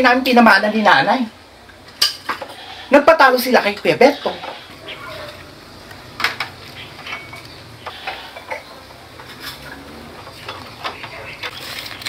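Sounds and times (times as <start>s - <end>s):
dishes and utensils clinking: 6.2s - 12.0s.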